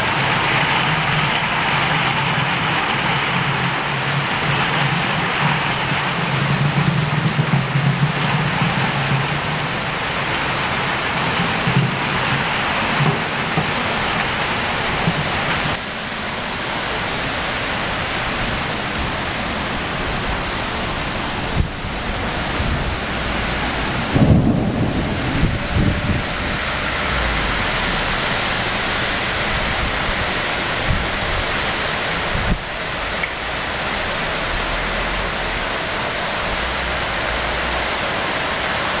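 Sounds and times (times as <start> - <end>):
heavy rain pouring: 0.0 - 39.0
deep low rumbles: 21.1 - 30.2.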